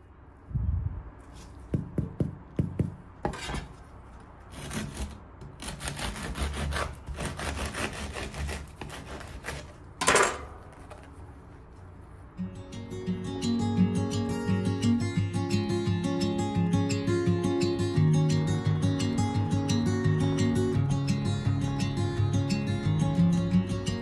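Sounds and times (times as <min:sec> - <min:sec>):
bread knife sawing through crust: 0:04.5 - 0:09.8.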